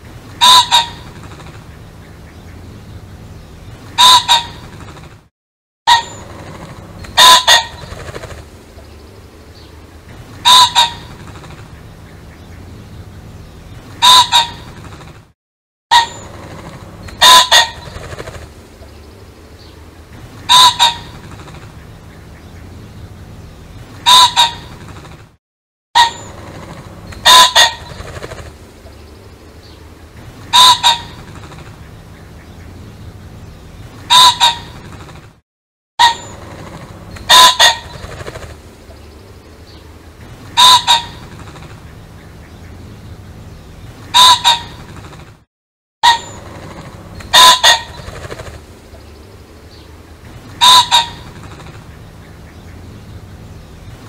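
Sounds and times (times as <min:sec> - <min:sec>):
pheasant crowing: 0:00.4 - 0:01.1, 0:03.9 - 0:04.8, 0:05.9 - 0:08.4, 0:10.4 - 0:11.4, 0:14.0 - 0:14.8, 0:15.9 - 0:18.4, 0:20.4 - 0:21.6, 0:24.0 - 0:24.8, 0:26.0 - 0:28.5, 0:30.5 - 0:31.6, 0:34.0 - 0:34.9, 0:36.0 - 0:38.5, 0:40.5 - 0:41.5, 0:44.1 - 0:44.9, 0:46.0 - 0:48.6, 0:50.6 - 0:52.5.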